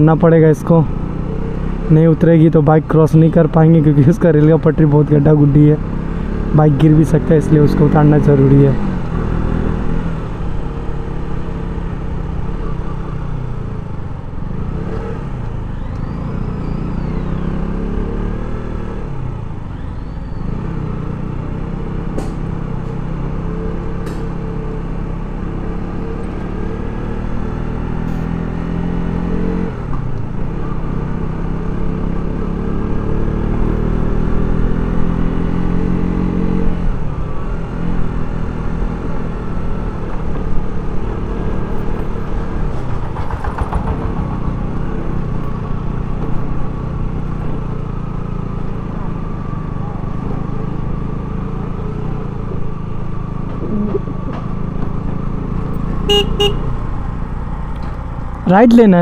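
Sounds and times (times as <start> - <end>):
road rumble: 0.0 - 59.0
wind: 0.0 - 59.0
motorcycle engine running: 36.8 - 59.0.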